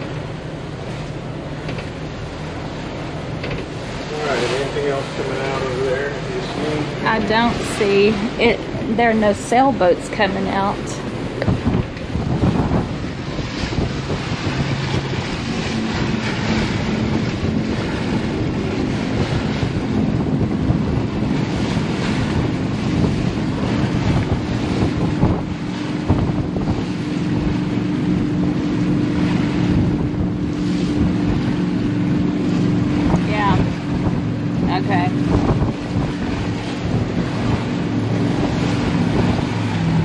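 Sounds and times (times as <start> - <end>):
boat engines droning: 0.0 - 40.0
water rushing past hull: 0.0 - 40.0
wind buffeting microphone: 0.0 - 40.0.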